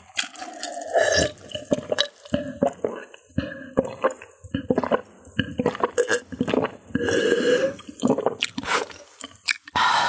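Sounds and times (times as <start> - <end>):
person gulping and swallowing: 0.0 - 9.8
breath-like sound: 6.9 - 7.8, 9.7 - 10.0.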